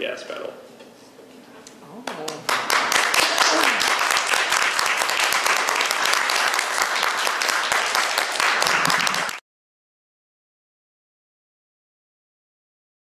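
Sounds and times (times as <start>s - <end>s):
audience applauding: 2.1s - 9.4s.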